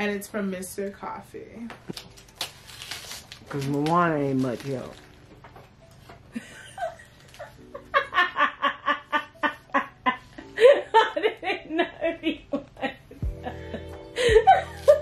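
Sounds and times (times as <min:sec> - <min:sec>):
woman laughing hard: 0:06.3 - 0:15.0.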